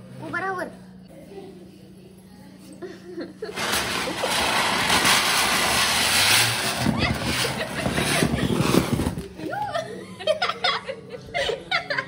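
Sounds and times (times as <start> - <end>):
spinning firework hissing: 3.5 - 9.3.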